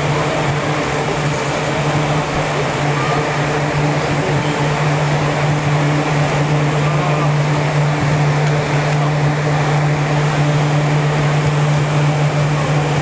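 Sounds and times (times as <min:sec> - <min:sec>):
ventilation blowers humming: 0:00.0 - 0:13.0.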